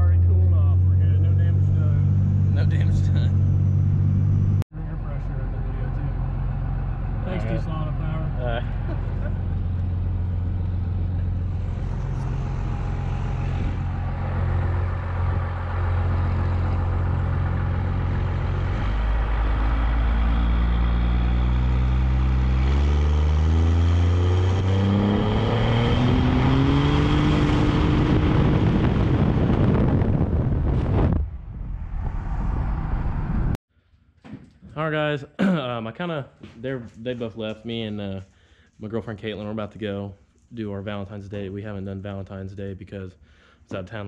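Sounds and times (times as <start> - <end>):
diesel engine accelerating: 0.0 - 33.6.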